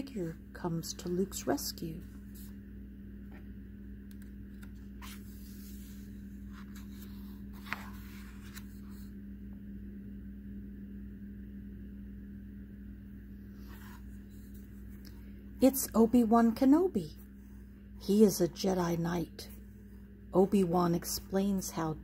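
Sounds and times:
steady low hum: 0.0 - 22.0
paper pages rustling: 4.2 - 9.1.

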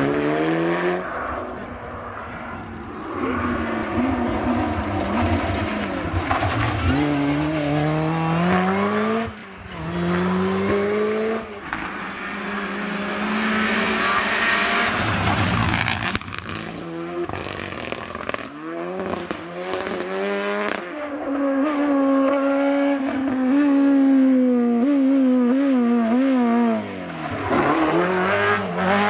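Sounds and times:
rally car engine at full throttle: 0.0 - 29.0
tyres sliding on gravel: 3.3 - 8.8.

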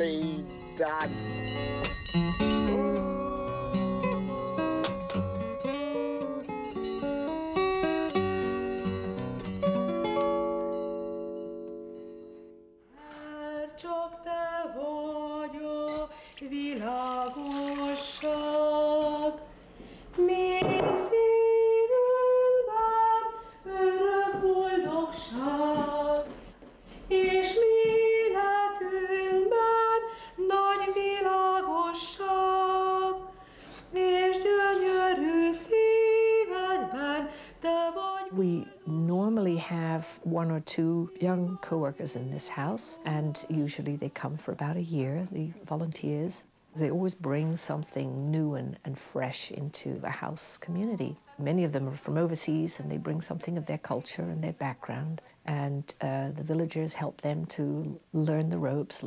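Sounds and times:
guitar chord: 0.0 - 12.7
woman singing: 2.2 - 6.8, 12.9 - 26.5, 27.1 - 59.0.

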